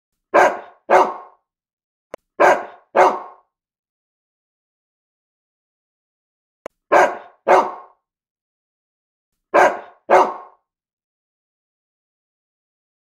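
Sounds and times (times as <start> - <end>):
dog barking: 0.3 - 1.4, 2.4 - 3.5, 6.9 - 8.0, 9.5 - 10.6.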